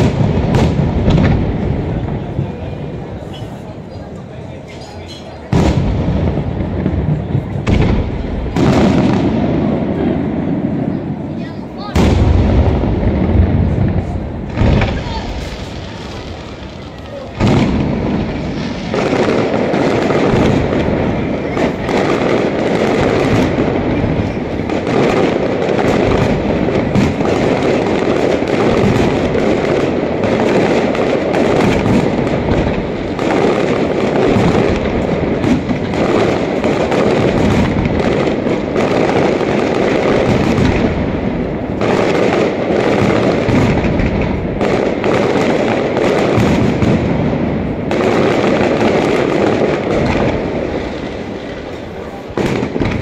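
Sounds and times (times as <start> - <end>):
fireworks bangs and crackling: 0.0 - 53.0.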